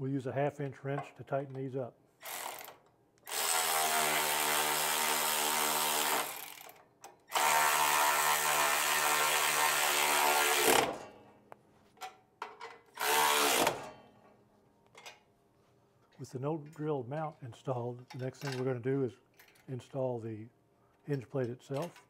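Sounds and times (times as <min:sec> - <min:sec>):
electric ratchet running: 0:02.2 - 0:10.9.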